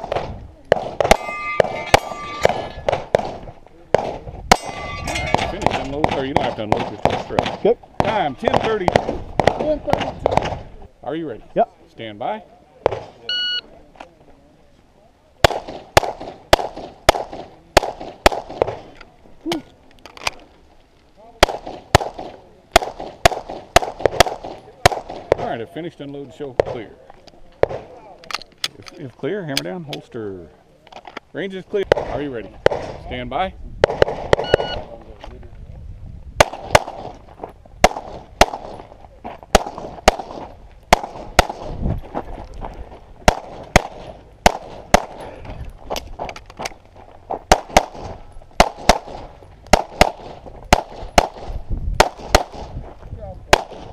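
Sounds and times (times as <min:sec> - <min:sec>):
handgun shots: 0:00.0 - 0:10.6
pistol shots with echo: 0:00.0 - 0:10.6, 0:15.4 - 0:18.9, 0:21.4 - 0:25.5, 0:31.9 - 0:33.0, 0:33.8 - 0:34.9, 0:36.4 - 0:37.2, 0:37.8 - 0:38.9, 0:39.5 - 0:41.8, 0:43.2 - 0:45.2, 0:47.5 - 0:52.8, 0:53.5 - 0:53.9.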